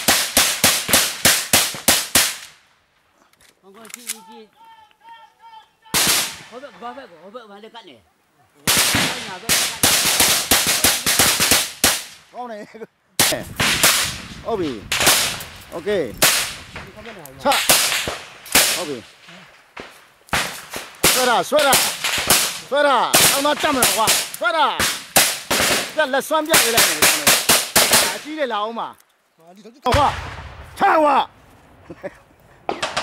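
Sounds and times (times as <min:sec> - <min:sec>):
rifle gunfire bursts: 0:00.0 - 0:02.5, 0:06.0 - 0:06.6, 0:08.7 - 0:12.2, 0:14.9 - 0:15.4, 0:16.2 - 0:16.8, 0:17.5 - 0:19.1, 0:19.8 - 0:28.3.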